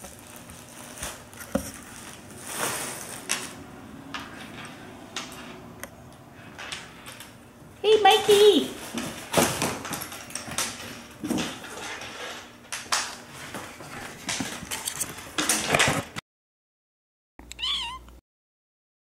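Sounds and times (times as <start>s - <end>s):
plastic packaging crinkling: 0.0s - 3.7s.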